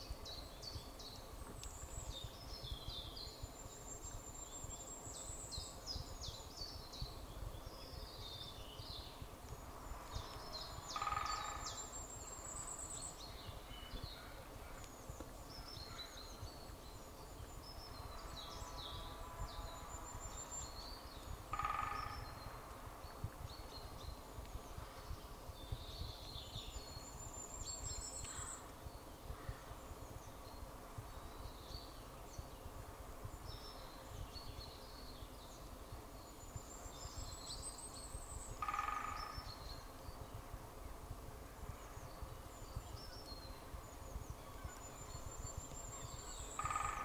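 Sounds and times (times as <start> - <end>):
birds chirping and singing: 0.0 - 40.4, 41.6 - 47.0.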